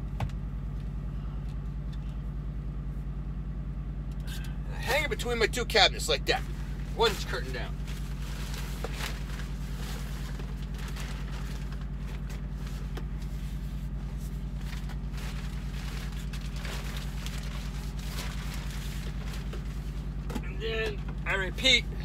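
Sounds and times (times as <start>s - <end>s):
truck diesel engine idling: 0.0s - 22.0s
plastic curtain rustling: 7.0s - 20.3s.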